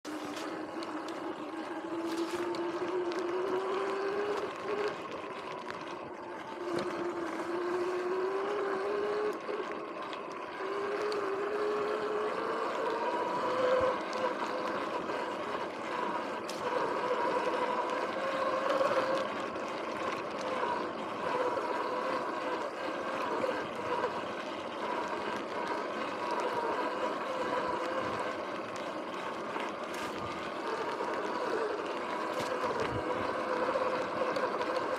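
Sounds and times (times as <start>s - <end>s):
electric motor whining: 0.0s - 34.9s.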